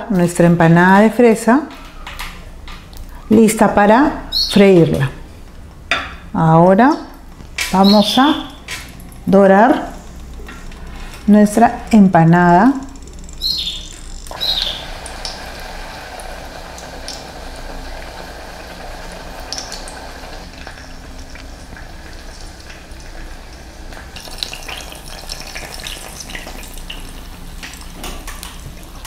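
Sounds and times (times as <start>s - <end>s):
oil sizzling and bubbling: 12.9s - 29.0s.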